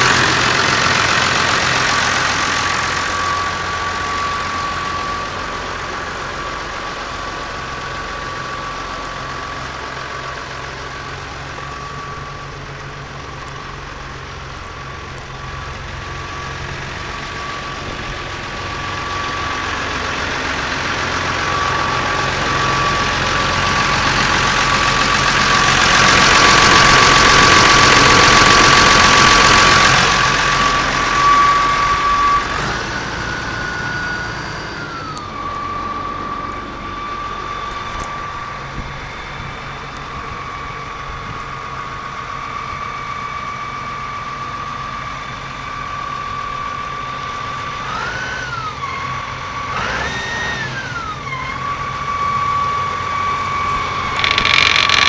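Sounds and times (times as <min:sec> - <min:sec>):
high engine whine: 0:00.0 - 0:55.0
tractor diesel engine idling: 0:00.0 - 0:55.0.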